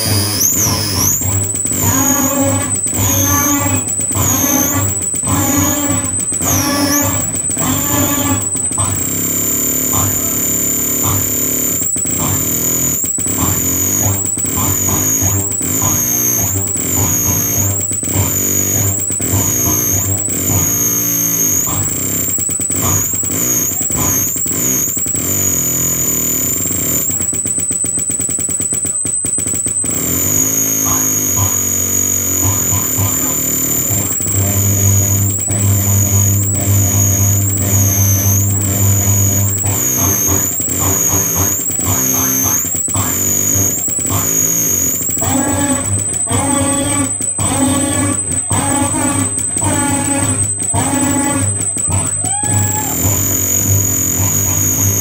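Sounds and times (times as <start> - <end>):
distorted synthesizer drone: 0.0 - 55.0
high whistling tone: 0.0 - 55.0
short clicks: 0.0 - 55.0
heavy low hum: 29.8 - 55.0.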